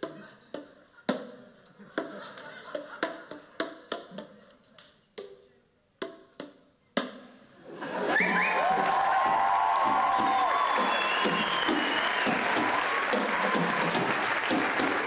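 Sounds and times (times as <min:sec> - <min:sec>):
plastic tubes struck rhythmically: 0:00.0 - 0:07.5
applause: 0:08.1 - 0:15.0.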